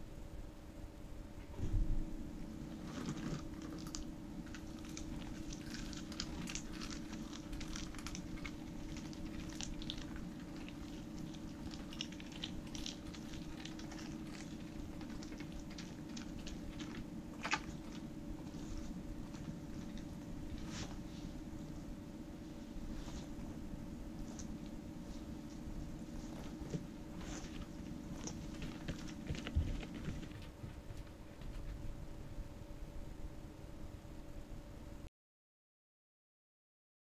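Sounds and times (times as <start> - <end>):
steady low hum: 0.0 - 35.1
dog crunching a treat: 2.8 - 20.7, 26.3 - 30.6.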